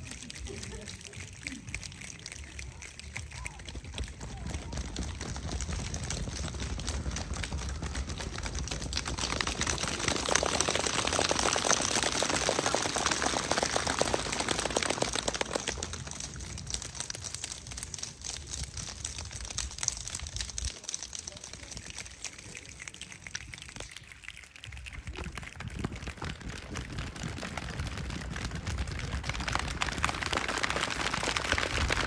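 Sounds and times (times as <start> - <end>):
dense crackling clicks: 13.9 - 27.8.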